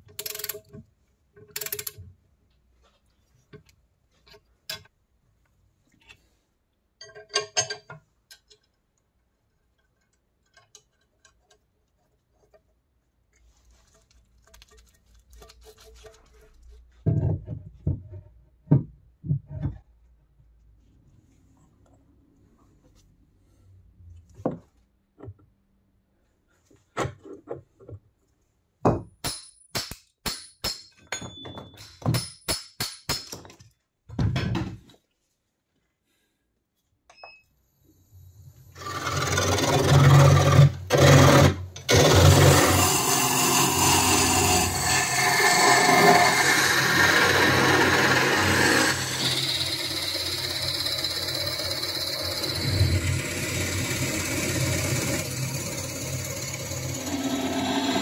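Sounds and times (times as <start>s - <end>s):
wrench clinking on bolts: 0.0s - 0.7s, 1.4s - 2.0s.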